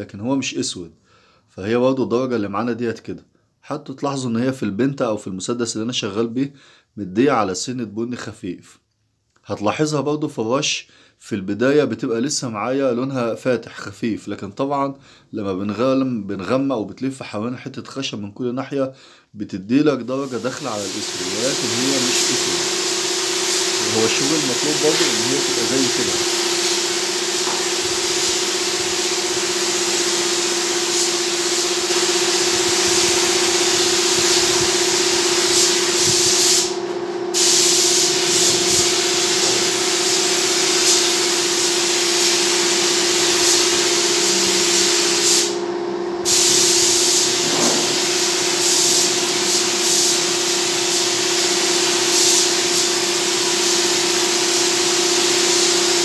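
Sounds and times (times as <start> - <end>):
spray gun hissing: 20.2 - 45.6, 46.2 - 56.0
steady hum: 21.6 - 40.3, 43.6 - 50.0.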